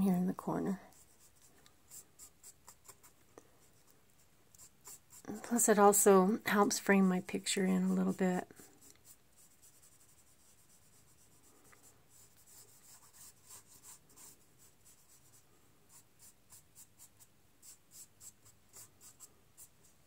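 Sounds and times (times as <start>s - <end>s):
sponge rubbing on paper: 8.6s - 20.0s.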